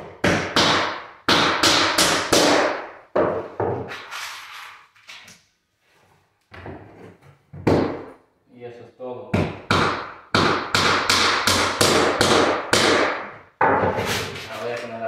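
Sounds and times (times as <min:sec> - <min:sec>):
hammer driving nails into wood: 0:00.2 - 0:03.4, 0:09.4 - 0:14.0.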